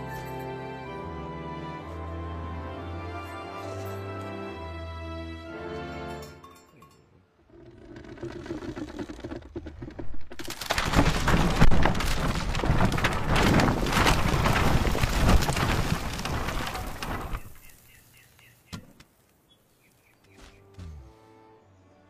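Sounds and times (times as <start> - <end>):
timber breaking: 7.9 - 17.8
rockslide rumbling crash: 8.0 - 17.8.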